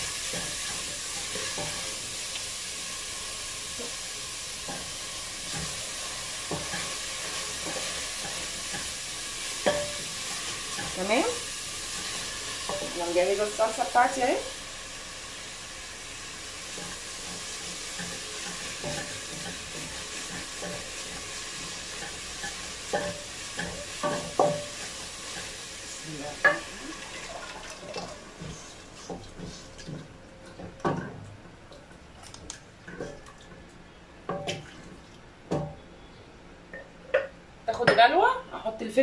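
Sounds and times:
onion and garlic sizzling in oil: 0.0s - 31.2s.

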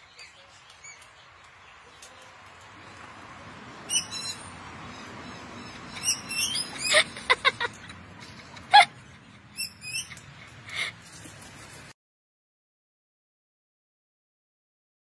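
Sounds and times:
cockatoos calling: 3.9s - 10.9s.

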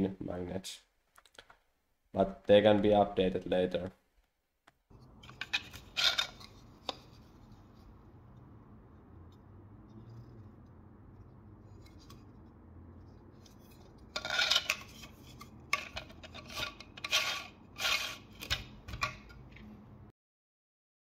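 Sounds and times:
plastic parts rubbing and scraping: 4.9s - 8.1s, 9.3s - 19.7s.

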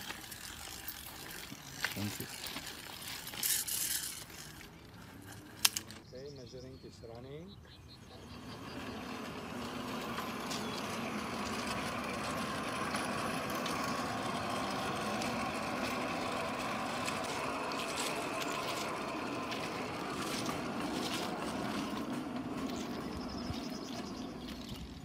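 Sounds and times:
short clicks and crunches: 0.0s - 6.0s
trolley rolling on rails: 0.0s - 7.2s, 7.8s - 25.0s.

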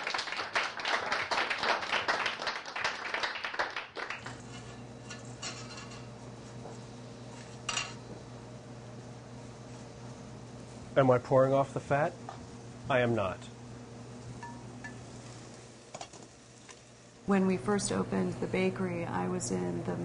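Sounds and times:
audience applauding: 0.0s - 4.3s
steady low hum: 4.2s - 20.0s.

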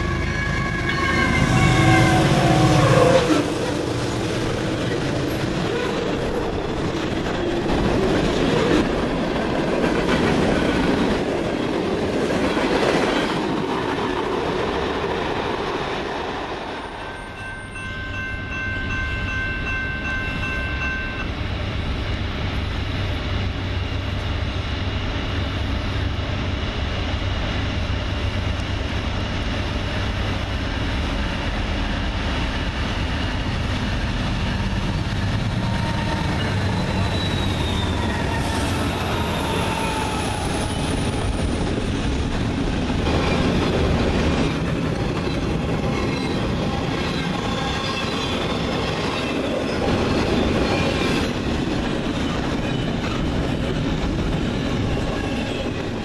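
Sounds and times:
locomotive horn chord: 0.0s - 3.4s
diesel locomotive rumble: 17.7s - 56.0s.

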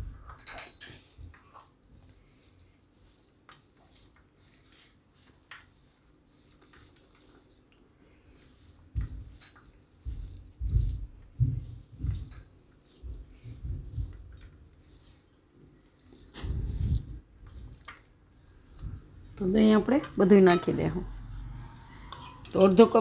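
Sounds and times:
hands squishing and crumbling food: 0.9s - 19.8s.

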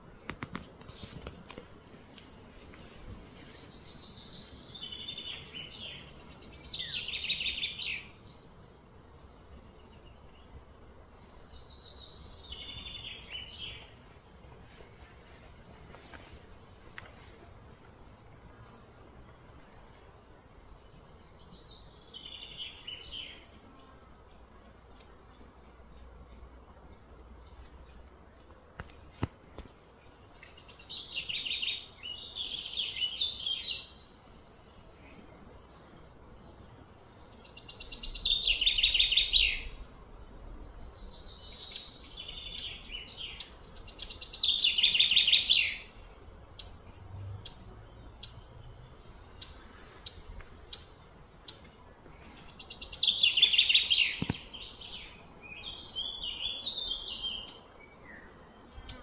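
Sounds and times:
bird singing trilled phrases: 28.7s - 59.0s.

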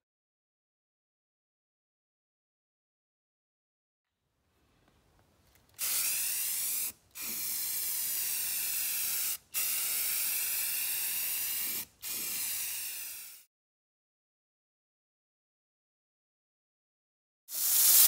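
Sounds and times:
aerosol spray can hissing: 5.8s - 13.5s, 17.5s - 18.0s.

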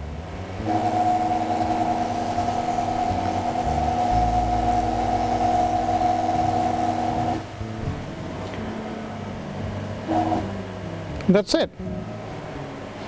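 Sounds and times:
low hum: 0.0s - 11.2s
stepper motors whining: 0.6s - 7.5s, 10.1s - 10.5s.

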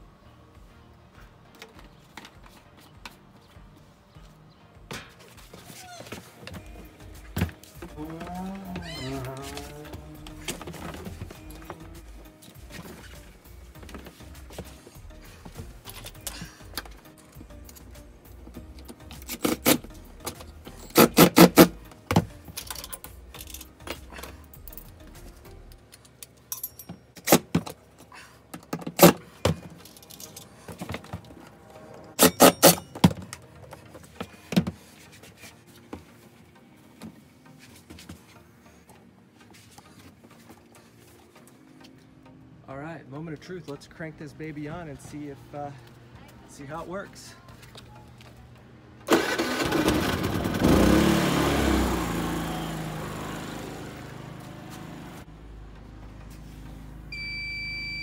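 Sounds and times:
metal clicks and clanks of bolts: 22.4s - 24.1s, 28.6s - 30.6s
small generator engine running: 49.1s - 55.2s.

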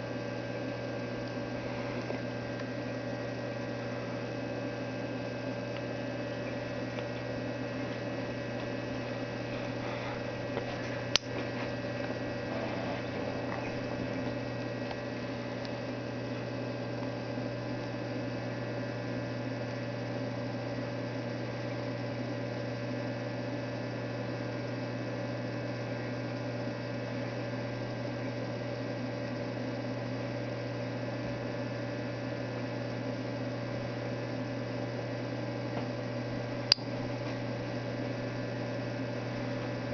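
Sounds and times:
aquarium pump humming: 0.0s - 39.9s
sharp click: 36.7s - 36.9s.

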